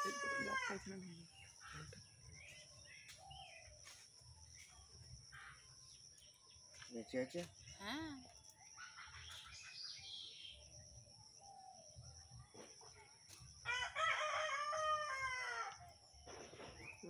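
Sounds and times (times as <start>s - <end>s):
rooster crowing: 0.0s - 0.8s, 13.6s - 15.9s.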